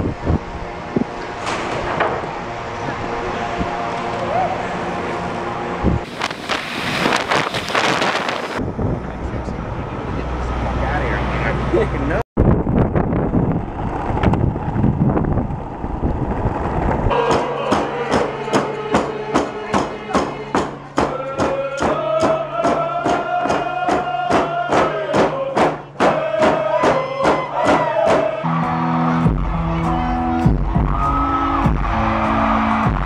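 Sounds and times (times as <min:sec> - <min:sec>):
low rumbling noise: 0:00.0 - 0:21.0
group chanted singing: 0:17.1 - 0:28.8.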